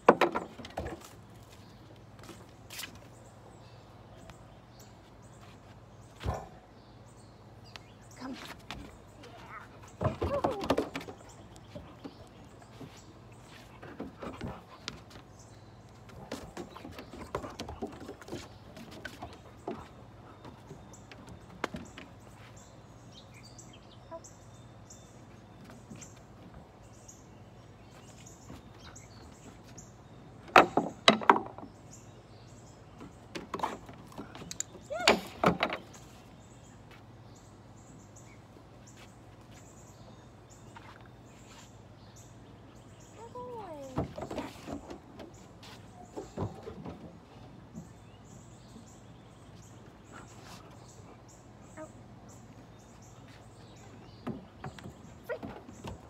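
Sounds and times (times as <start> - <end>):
ball bouncing on wooden deck: 0.0 - 1.1, 10.0 - 12.3, 30.5 - 31.7, 54.2 - 56.0
dog paws on wooden deck: 0.0 - 6.7, 7.6 - 56.0
small birds chirping: 0.5 - 56.0.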